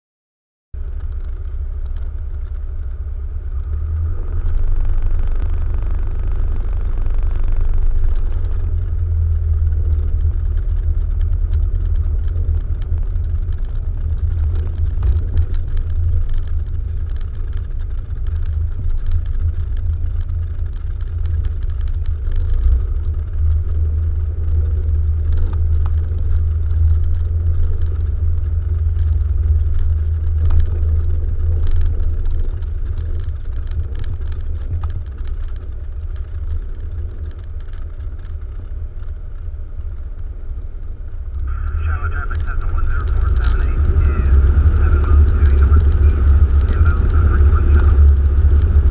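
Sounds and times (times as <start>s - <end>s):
aircraft engine drone: 40.5s - 48.9s.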